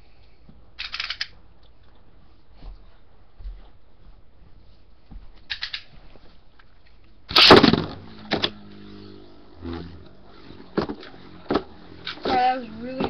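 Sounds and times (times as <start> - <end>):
launcher clicks: 0.8 - 1.4, 5.5 - 5.9, 7.3 - 8.6
spinning top launch rip and clatter: 7.3 - 13.0
spinning top whirring: 7.3 - 13.0.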